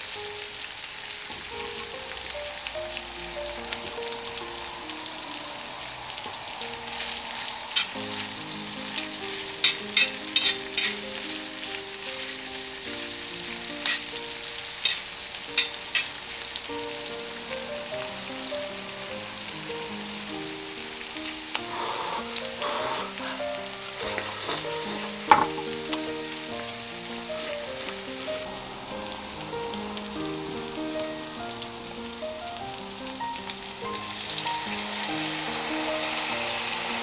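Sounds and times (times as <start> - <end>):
meat sizzling on a griddle: 0.0 - 37.0
piano music: 0.0 - 37.0
utensil tapping griddle: 9.0 - 11.0, 13.8 - 14.2, 14.8 - 16.1, 21.6 - 26.7.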